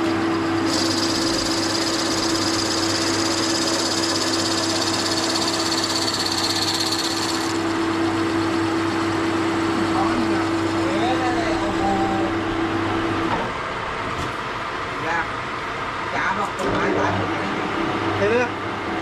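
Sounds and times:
lathe motor hum: 0:00.0 - 0:14.8
drill cutting hiss: 0:00.6 - 0:07.7.

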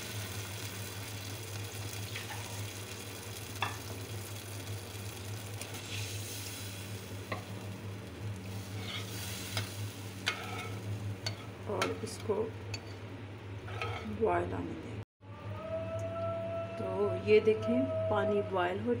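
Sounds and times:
masala sizzling in a pot: 0:00.0 - 0:14.3
steady low hum: 0:05.1 - 0:19.0.

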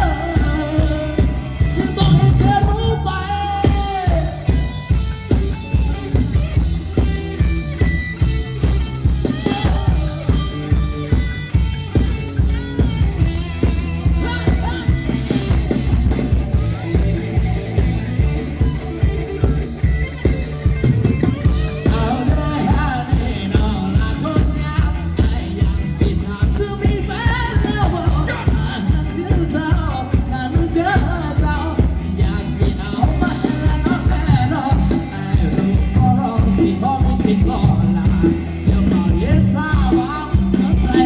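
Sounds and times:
person singing: 0:00.0 - 0:04.7, 0:09.2 - 0:11.6, 0:21.5 - 0:41.0
drum kit beat: 0:00.0 - 0:41.0
guitar: 0:00.0 - 0:41.0.

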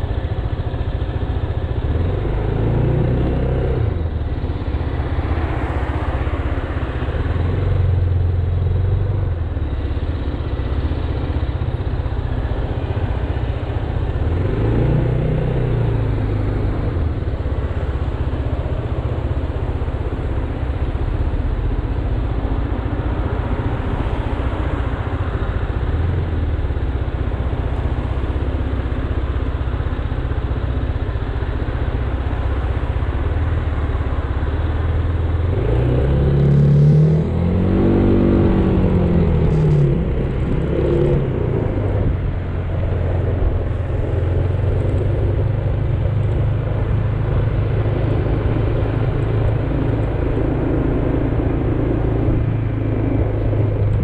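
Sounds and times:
engine revving: 0:35.4 - 0:45.6.

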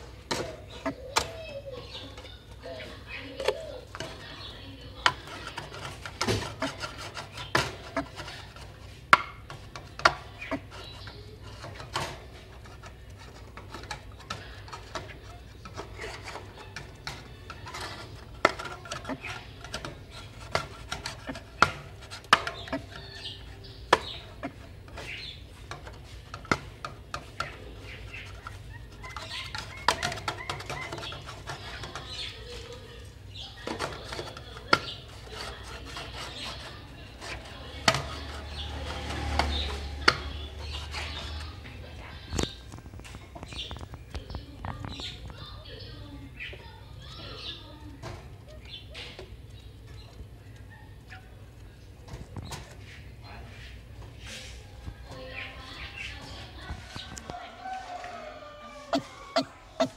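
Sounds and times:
waterhen clucking calls: 0:27.1 - 0:44.1, 0:55.1 - 0:59.9.

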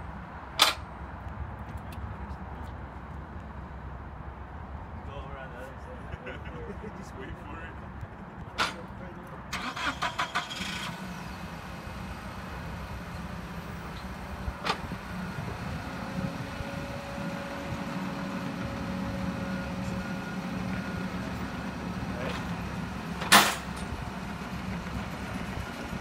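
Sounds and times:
forklift engine running: 0:09.6 - 0:26.0.

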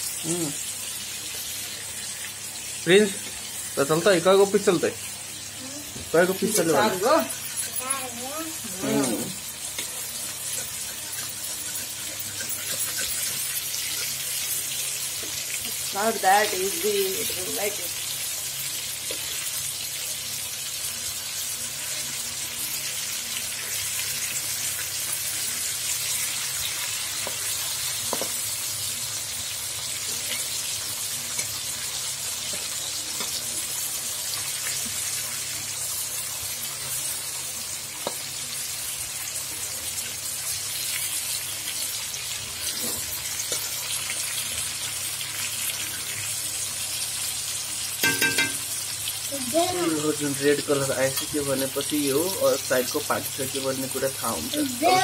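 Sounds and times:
fish sizzling in hot oil: 0:00.0 - 0:55.0
spatula tapping and scraping: 0:09.7 - 0:14.1, 0:27.2 - 0:28.4.

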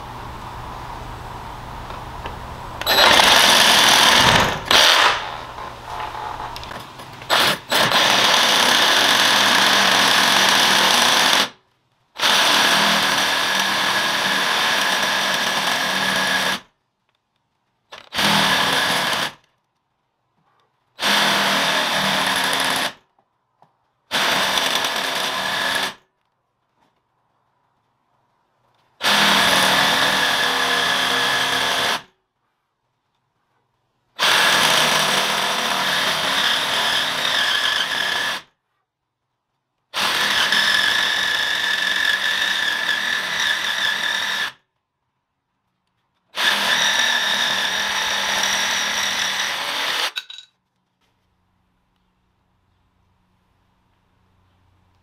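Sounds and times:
reciprocating saw cutting: 0:02.8 - 0:11.5, 0:29.0 - 0:32.1, 0:40.0 - 0:44.6, 0:46.4 - 0:50.2.

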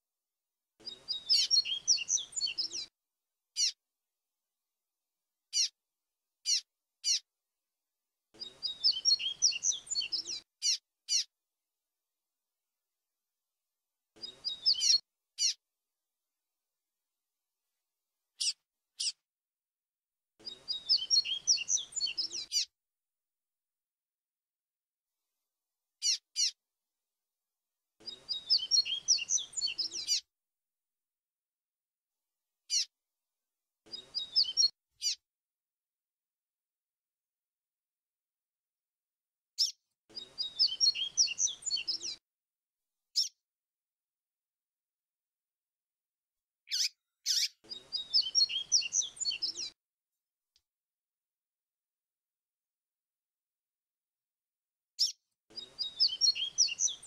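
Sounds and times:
bird chirping and whistling: 0:08.6 - 0:10.4, 0:20.7 - 0:22.6, 0:28.3 - 0:30.2, 0:34.2 - 0:35.2, 0:40.3 - 0:42.2, 0:46.7 - 0:49.7, 0:55.0 - 0:57.0.

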